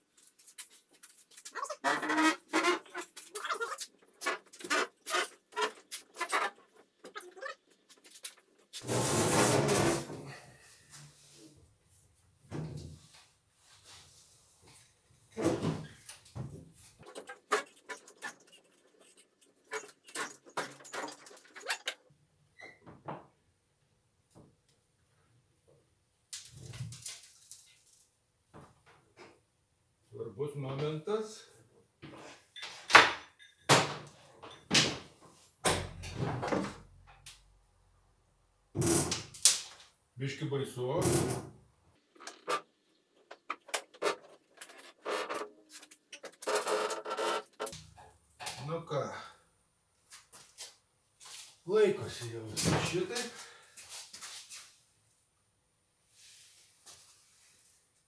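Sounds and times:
ropes and pulleys creaking: 17.0s - 22.0s, 42.0s - 47.8s.

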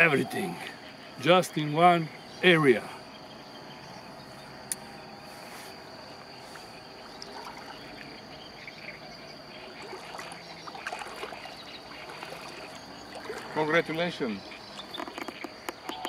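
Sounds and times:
crickets trilling: 0.0s - 16.0s.

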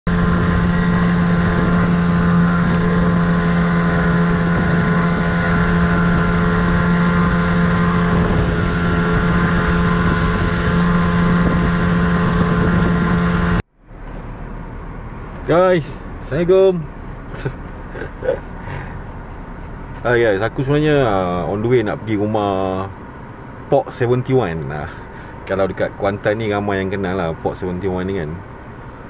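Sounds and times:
wind on microphone: 0.1s - 13.6s
outboard motor running: 0.1s - 22.9s, 24.6s - 25.9s.

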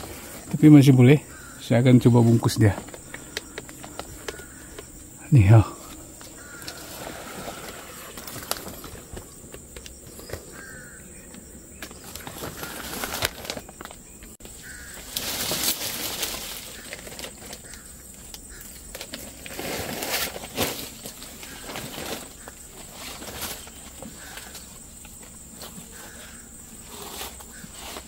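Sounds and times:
insect drone: 0.0s - 28.0s
mesh bag and leaves rustling: 3.8s - 9.3s, 11.8s - 24.9s.

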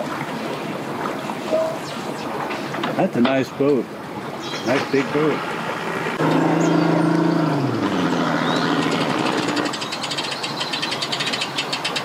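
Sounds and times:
outboard motor idling: 4.2s - 12.0s
outboard motor revving: 4.5s - 10.6s.

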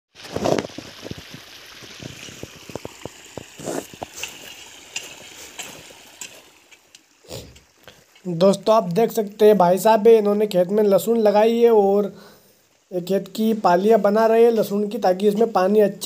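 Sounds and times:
irrigation water trickling: 0.1s - 16.0s
hoe chopping into soil: 3.5s - 6.5s.

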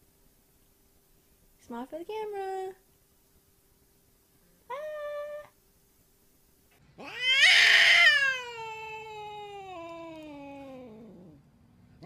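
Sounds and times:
cat yowling: 7.0s - 11.4s.

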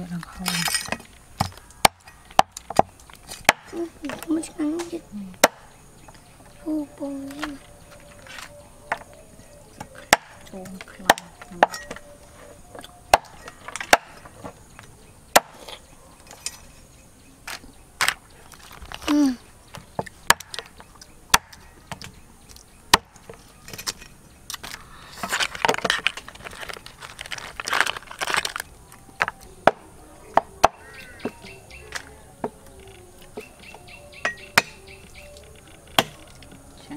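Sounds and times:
shells scraping and crunching: 0.0s - 5.0s, 7.2s - 19.1s, 20.0s - 36.9s
cleaver chopping crab shells: 9.8s - 12.0s, 20.0s - 22.0s, 35.9s - 36.4s.

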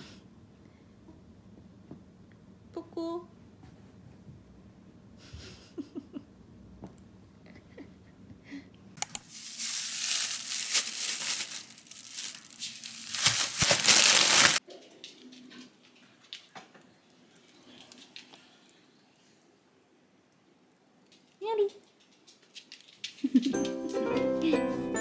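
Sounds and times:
plastic bags crinkling: 9.2s - 14.6s.

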